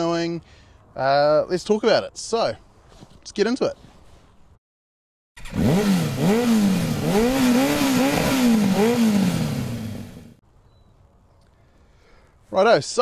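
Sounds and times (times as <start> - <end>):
motorcycle engine revving: 5.4 - 10.4.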